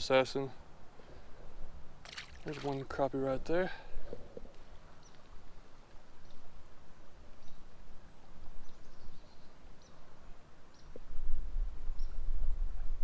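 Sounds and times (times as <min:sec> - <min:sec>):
bird chirping: 0:04.8 - 0:05.4, 0:06.2 - 0:06.5, 0:07.4 - 0:07.7, 0:08.6 - 0:10.1, 0:10.7 - 0:11.0.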